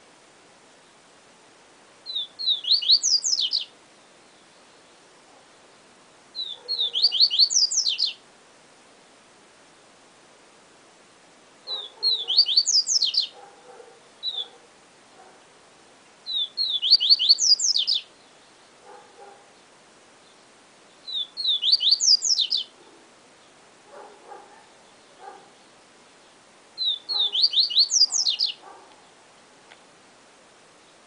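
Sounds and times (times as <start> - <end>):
bird singing whistled notes: 2.0 - 5.0, 6.3 - 8.2, 11.7 - 13.4, 14.2 - 14.6, 16.2 - 18.7, 20.2 - 22.8, 26.8 - 28.6.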